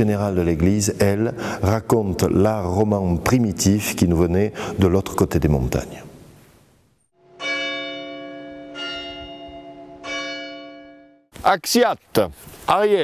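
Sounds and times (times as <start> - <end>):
church bell ringing: 7.2 - 11.3.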